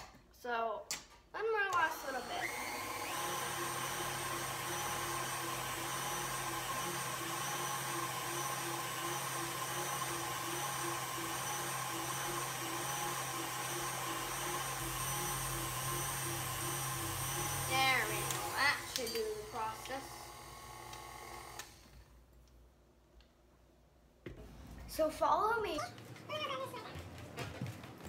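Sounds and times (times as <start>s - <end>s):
stand mixer whisking cream: 2.4s - 18.9s.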